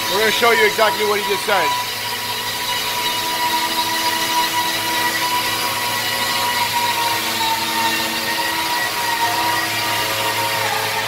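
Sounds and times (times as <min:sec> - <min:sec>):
machinery whirring drone: 0:00.0 - 0:11.0.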